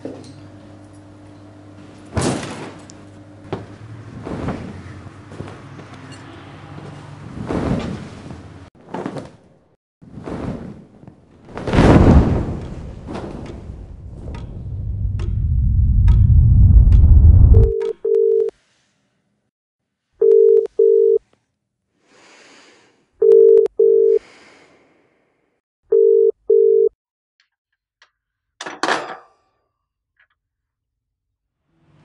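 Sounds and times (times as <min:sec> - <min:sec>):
deep rumbling swell: 0:13.8 - 0:17.7
telephone ringing tone: 0:17.6 - 0:18.5, 0:20.2 - 0:21.2, 0:23.2 - 0:24.2, 0:25.9 - 0:26.9.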